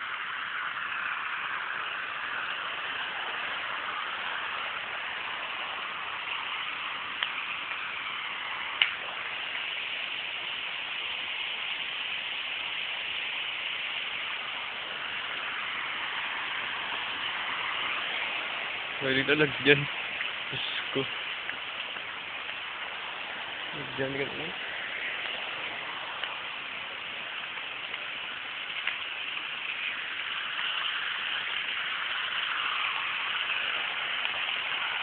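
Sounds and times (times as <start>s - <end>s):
steady hiss: 0.0s - 35.0s
faint clicks: 8.8s - 9.0s.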